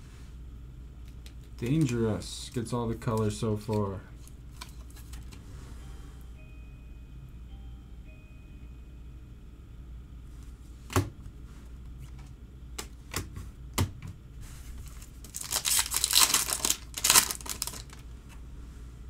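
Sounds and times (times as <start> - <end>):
wrapper crinkling: 14.8 - 18.1
foil pack tearing: 14.9 - 18.0.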